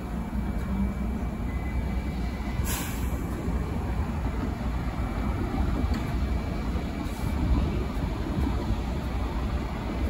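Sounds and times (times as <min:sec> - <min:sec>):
subway train rumbling: 0:00.0 - 0:10.0
short hiss: 0:02.6 - 0:03.2.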